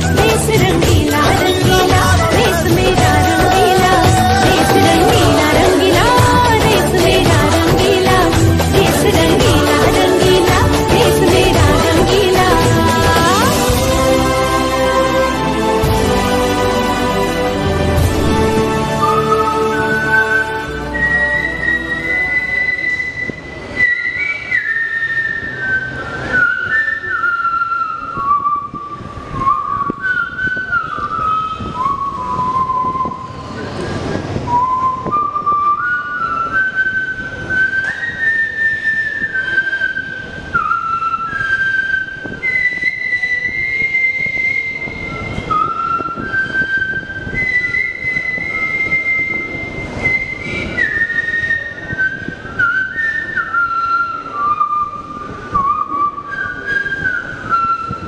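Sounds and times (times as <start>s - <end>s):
person whistling a melody: 18.9s - 58.0s.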